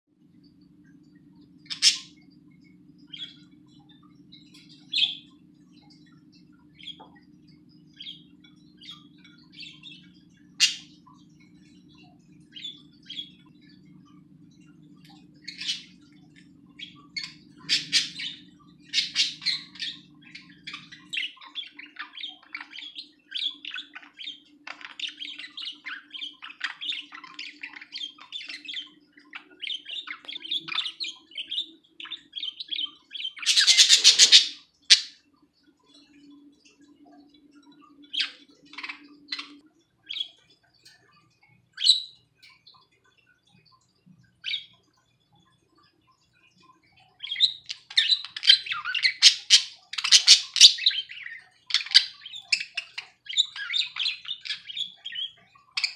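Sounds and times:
budgerigars chirping: 1.7 - 2.2, 3.0 - 7.3, 7.9 - 13.8, 15.0 - 35.2, 47.2 - 55.9.

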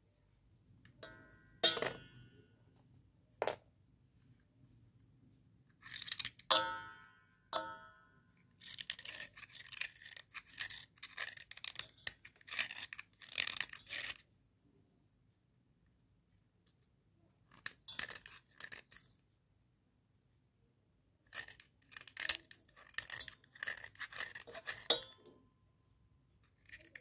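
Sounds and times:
pieces striking steel bowl: 1.0 - 2.3, 6.5 - 8.1, 24.7 - 25.4
slate pencil crunching: 5.7 - 6.5, 8.4 - 14.3, 17.5 - 19.1, 21.3 - 25.0, 26.4 - 27.0.

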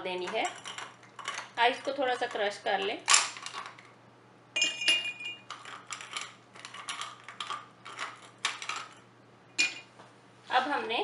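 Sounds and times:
ice rattling in plastic cup: 5.5 - 9.0.

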